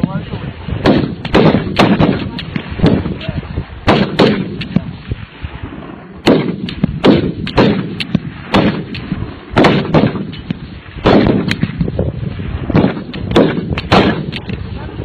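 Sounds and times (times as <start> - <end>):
rifle shots with echo: 0.8 - 5.0, 6.2 - 11.8, 12.7 - 14.6.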